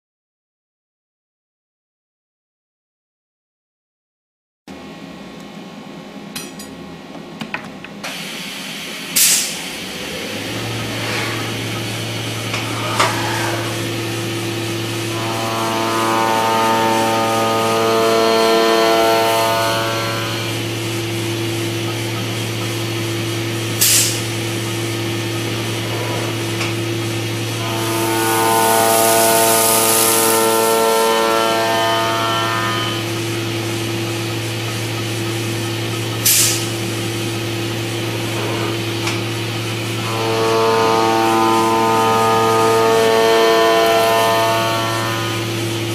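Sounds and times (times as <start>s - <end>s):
low machine hum: 4.7s - 45.9s
hiss: 8.1s - 12.8s, 23.8s - 24.4s, 27.8s - 33.0s, 36.2s - 36.8s
milling cutter whine: 8.9s - 45.9s.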